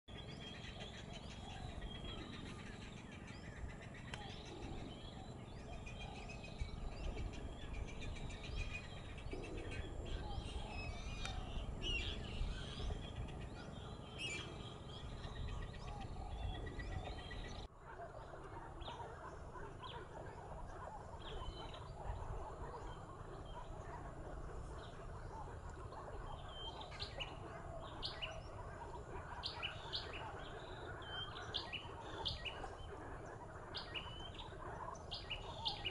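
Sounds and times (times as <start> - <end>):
steady low rumble: 0.1 - 17.7
birds chirping: 0.1 - 35.9.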